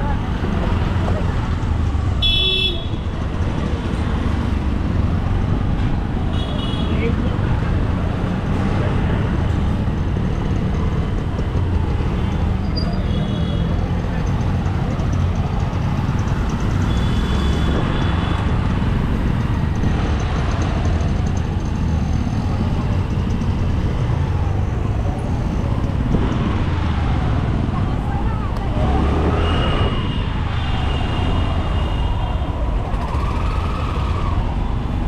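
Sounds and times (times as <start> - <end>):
road and traffic noise: 0.0 - 35.0
wind rushing on microphone: 24.8 - 35.0.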